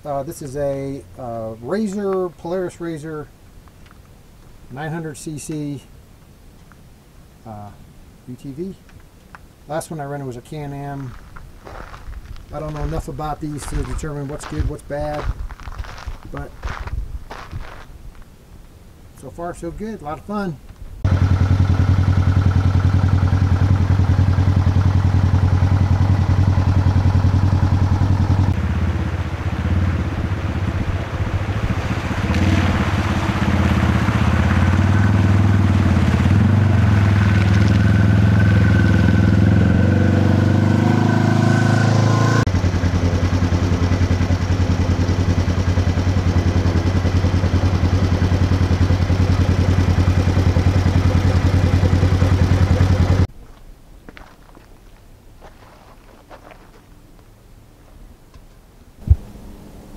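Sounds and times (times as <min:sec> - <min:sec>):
vehicle engine droning: 0:21.0 - 0:53.3, 0:59.0 - 0:59.9
water splashing: 0:28.6 - 0:38.4.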